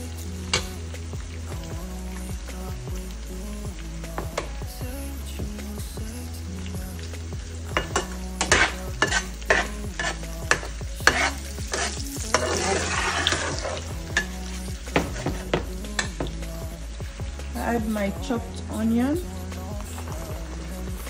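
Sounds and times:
sausage sizzling in oil: 0:00.0 - 0:21.0
metal spatula scraping pan: 0:07.9 - 0:14.3.

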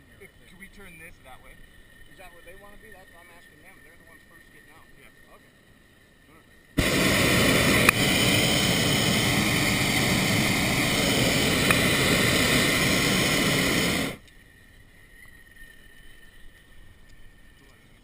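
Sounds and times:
propane burner blast: 0:06.8 - 0:14.2.

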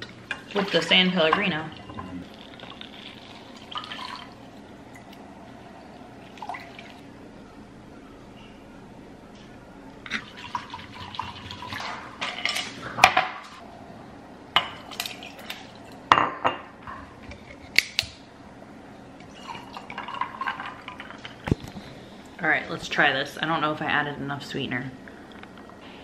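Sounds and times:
sparkling water pouring: 0:00.4 - 0:05.2, 0:06.2 - 0:07.0, 0:10.2 - 0:12.1, 0:19.3 - 0:21.5
liquid poured over ice: 0:02.2 - 0:04.4.

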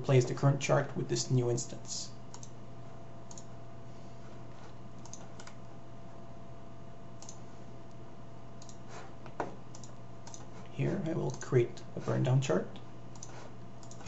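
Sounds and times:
low electrical hum: 0:00.0 - 0:14.0
computer input clicks: 0:03.3 - 0:03.5, 0:05.0 - 0:05.6, 0:07.2 - 0:07.4, 0:08.6 - 0:08.8, 0:09.7 - 0:10.5, 0:13.1 - 0:14.0.

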